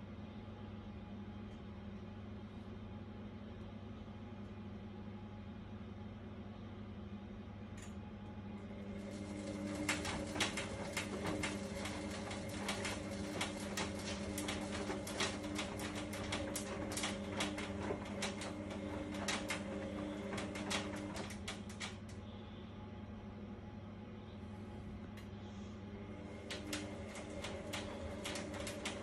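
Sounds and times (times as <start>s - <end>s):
washer drum motor hum: 8.4s - 22.4s, 24.6s - 29.0s.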